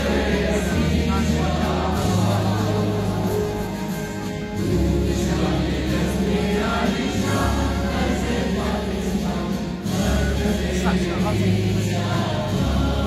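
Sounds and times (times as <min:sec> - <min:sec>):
choral singing: 0:00.0 - 0:13.0.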